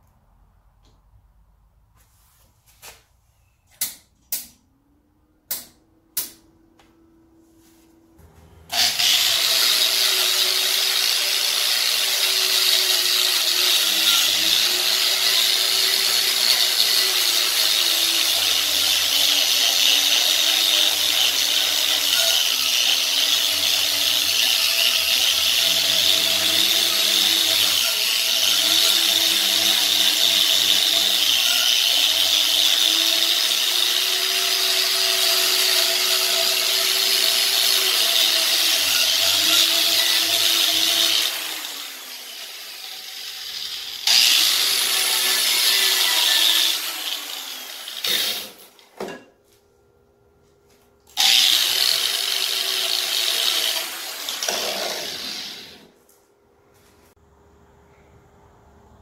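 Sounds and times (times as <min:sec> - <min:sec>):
orbital sander sanding metal: 0:08.7 - 0:48.5.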